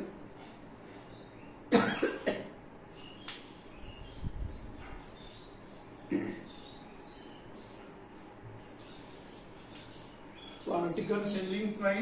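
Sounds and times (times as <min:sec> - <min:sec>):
person coughing: 0:01.7 - 0:02.6, 0:06.1 - 0:06.5
faint bird chirps: 0:02.9 - 0:11.8.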